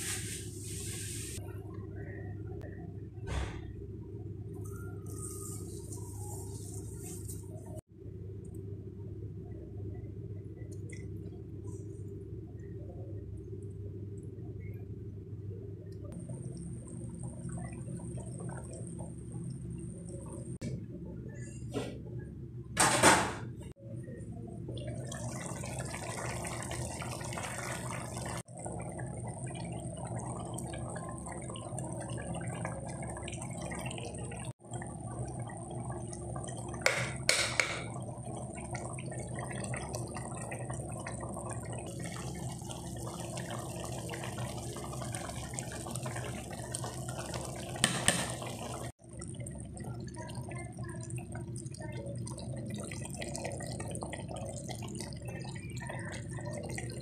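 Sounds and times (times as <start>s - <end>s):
low hum: 0.0s - 22.8s
curry simmering and bubbling: 16.0s - 20.6s, 24.1s - 57.0s.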